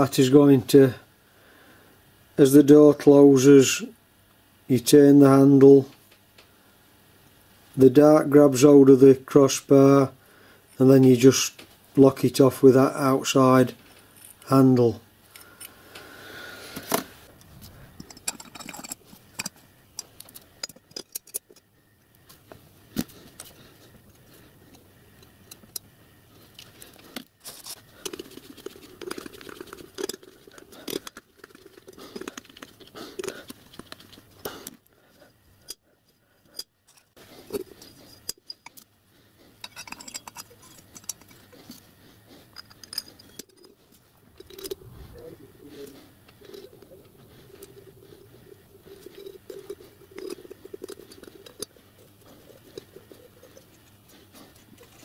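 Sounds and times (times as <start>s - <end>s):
small steel parts clicking: 17.3s - 21.7s, 26.5s - 34.8s, 36.4s - 38.9s, 39.6s - 41.8s, 42.5s - 44.8s, 48.8s - 55.0s.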